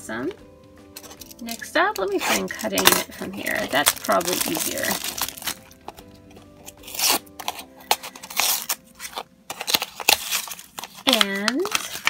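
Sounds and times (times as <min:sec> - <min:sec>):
soft background music: 0:00.0 - 0:12.0
cardboard box being torn open: 0:02.2 - 0:05.6, 0:06.6 - 0:12.0.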